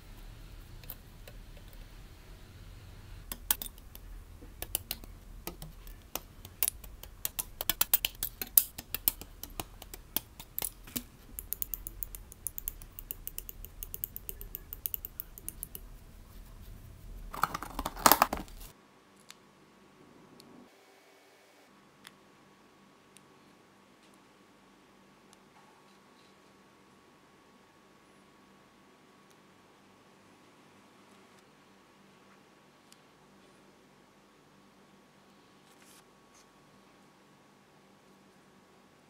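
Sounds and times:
plastic parts clicking together: 3.2 - 15.9, 17.3 - 18.7
plastic tub rattling: 17.3 - 18.7.

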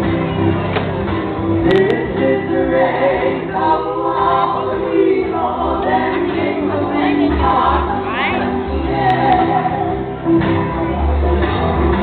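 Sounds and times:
electric guitar: 0.0 - 2.4
voices singing together: 1.6 - 10.3.

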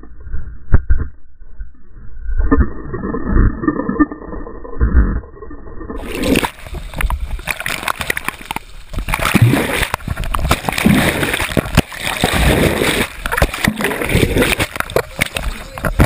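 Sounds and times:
water splashing and sloshing: 6.0 - 16.0.

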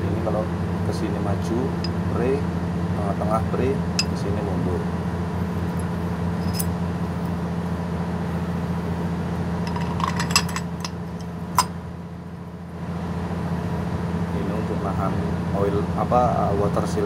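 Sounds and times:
steady low hum: 0.0 - 17.0
metal parts clinking: 6.4 - 6.7, 9.6 - 11.7.

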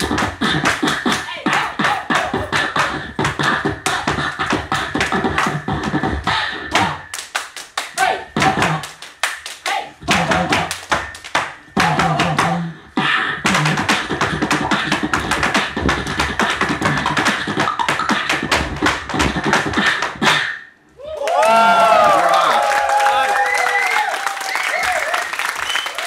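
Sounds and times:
tap dancing on wooden board: 0.0 - 7.0, 10.1 - 12.6, 13.4 - 20.2
beatboxing through a microphone: 0.0 - 7.3, 7.9 - 20.9.

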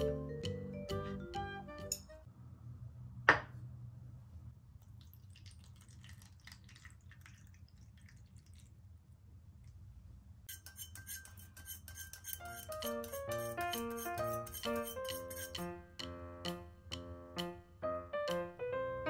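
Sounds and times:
water trickling into a cup: 4.8 - 9.0
whisk ticking against metal cup: 10.5 - 15.6.

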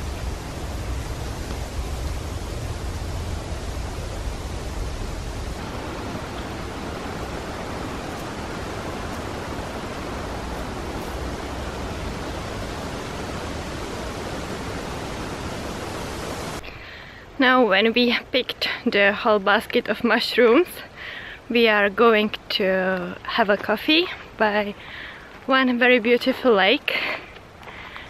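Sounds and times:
wind rumbling on microphone: 0.0 - 16.7
wind rushing in forest: 0.0 - 17.4.

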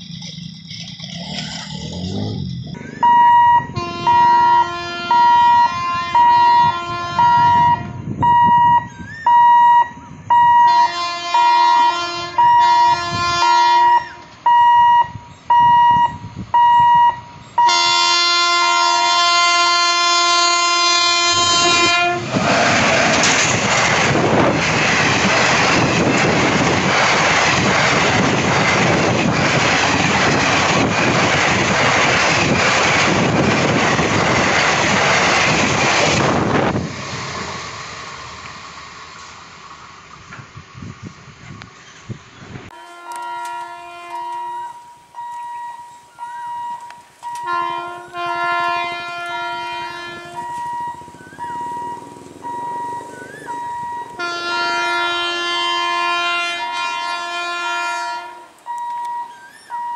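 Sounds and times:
train coaches rattling on track: 0.0 - 59.9
train horn hooting: 3.0 - 8.0, 10.4 - 16.2, 16.8 - 22.5, 42.7 - 59.9.

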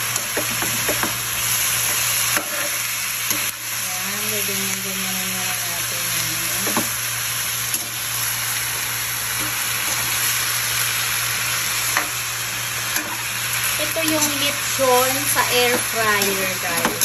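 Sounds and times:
meat sizzling in a wok: 0.0 - 17.0
metal spatula scraping wok: 1.9 - 3.5, 13.8 - 17.0.

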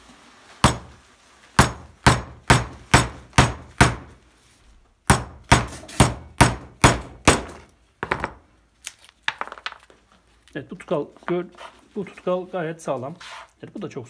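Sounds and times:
hammer striking steel chisel: 1.6 - 4.1, 5.1 - 7.7.

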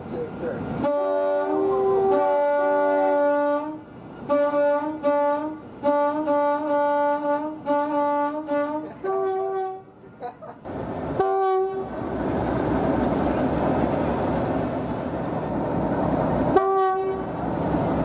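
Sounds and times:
locomotive two-tone air horn: 0.8 - 9.9, 11.2 - 11.9, 16.5 - 17.3.

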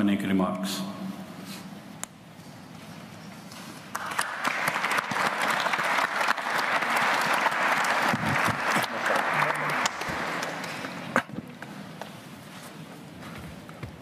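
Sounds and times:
audience applause: 3.9 - 11.2.

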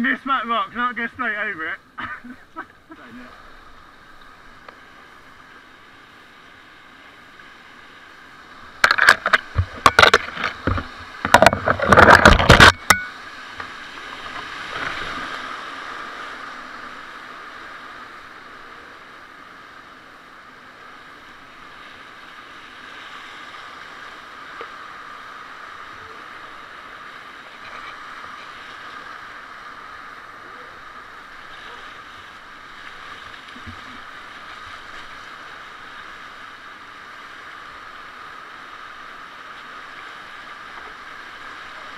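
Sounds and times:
whitewater rushing: 6.5 - 41.9
water crashing on boat: 8.7 - 17.0.

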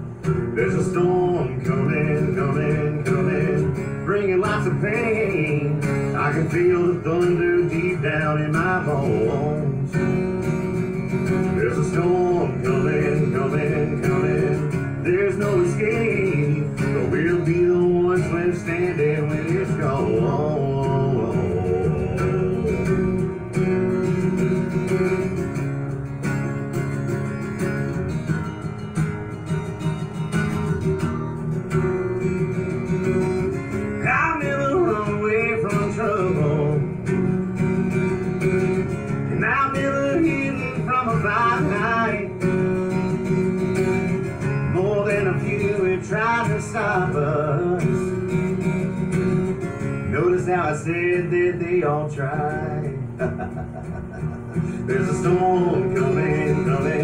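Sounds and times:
acoustic guitar strumming: 0.0 - 57.0
man singing: 0.3 - 10.2, 11.3 - 24.0, 33.5 - 37.3, 39.2 - 42.7, 43.8 - 48.8, 50.0 - 57.0.

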